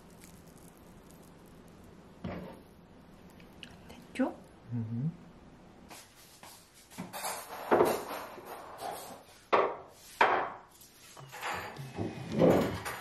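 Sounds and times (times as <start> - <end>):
dishes and cutlery on wooden table: 6.8 - 13.0.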